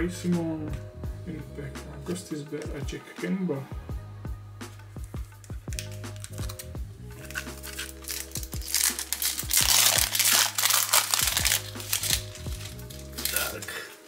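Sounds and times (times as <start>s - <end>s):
background music: 0.0s - 14.0s
wrapper crinkling and tearing: 5.3s - 13.9s.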